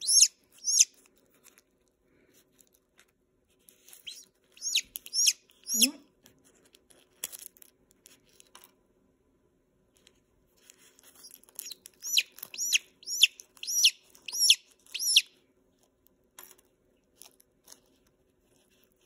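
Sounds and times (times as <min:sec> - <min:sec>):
chick peeping: 0:00.0 - 0:00.9, 0:04.0 - 0:06.0, 0:11.6 - 0:15.3.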